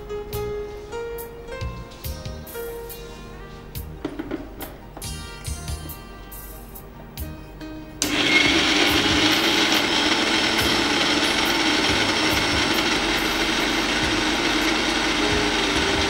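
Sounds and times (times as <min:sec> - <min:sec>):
electric mixer grinding spices: 0:08.0 - 0:16.0.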